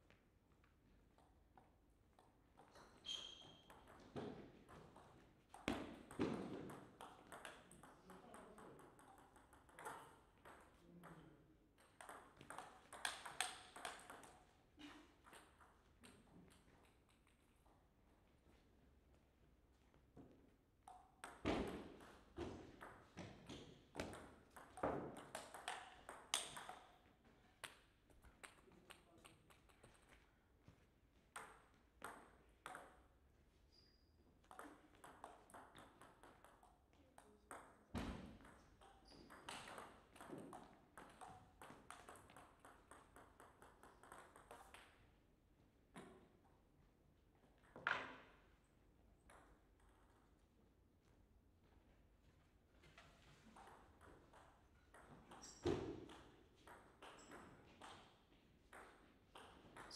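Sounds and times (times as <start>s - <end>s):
ball bouncing on table: 2.6s - 11.2s, 11.8s - 14.5s, 20.9s - 27.0s, 31.4s - 33.1s, 34.4s - 45.0s, 47.6s - 48.4s, 53.6s - 58.1s
table tennis ball clicking off paddles: 11.8s - 14.5s, 24.1s - 27.0s.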